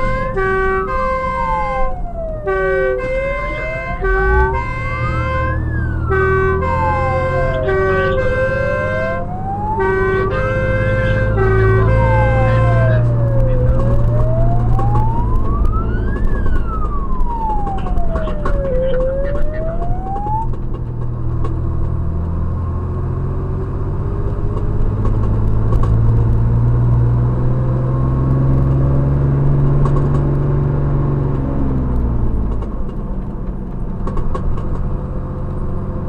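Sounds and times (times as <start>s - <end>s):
two-tone horn: 0.0s - 19.9s
fire engine siren wailing: 0.0s - 20.8s
truck engine rumbling: 0.0s - 36.0s.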